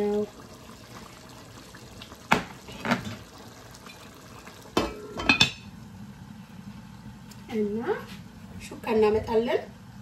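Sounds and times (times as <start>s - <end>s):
dishes and cutlery clinking: 4.8s - 5.6s.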